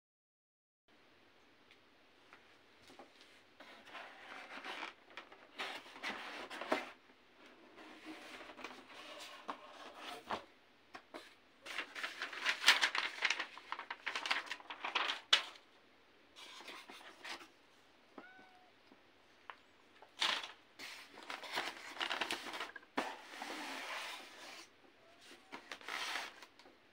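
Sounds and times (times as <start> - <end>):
cardboard and paper rustling: 3.0 - 15.7, 16.4 - 17.6, 20.0 - 26.8.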